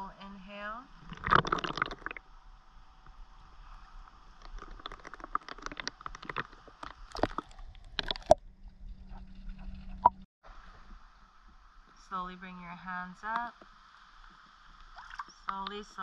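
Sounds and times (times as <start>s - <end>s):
pool water lapping: 13.0s - 16.0s
small splashes: 14.2s - 15.8s.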